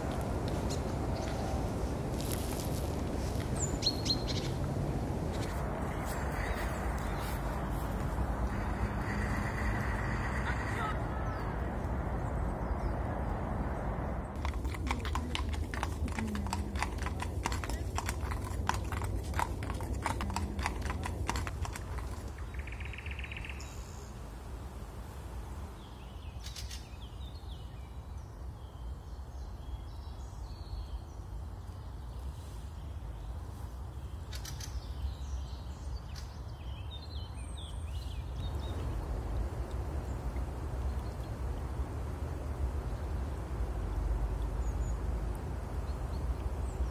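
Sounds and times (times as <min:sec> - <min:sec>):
steady low rumble: 0:00.0 - 0:22.8, 0:38.2 - 0:46.9
water trickling: 0:00.0 - 0:23.6, 0:35.0 - 0:46.9
horse hooves clopping: 0:14.4 - 0:22.8.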